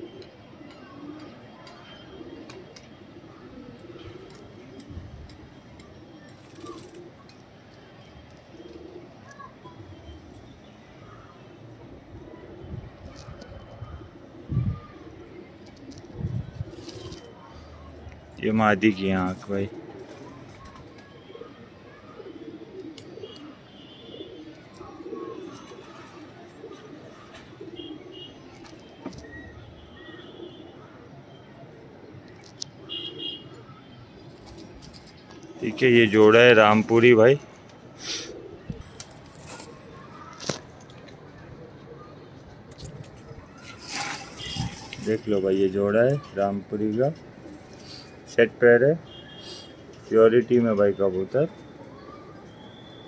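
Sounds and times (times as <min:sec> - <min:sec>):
pigeons cooing: 0:00.0 - 0:53.0
faint high chirps: 0:50.9 - 0:53.0.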